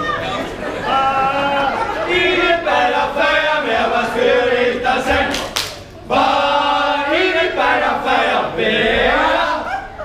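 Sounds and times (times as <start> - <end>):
group singing: 0.6 - 10.0.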